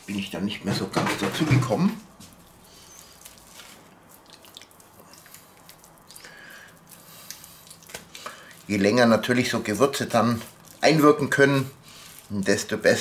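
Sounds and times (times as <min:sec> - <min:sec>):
cling film crinkling: 0:01.4 - 0:13.0
hands squishing on raw meat: 0:01.9 - 0:13.0.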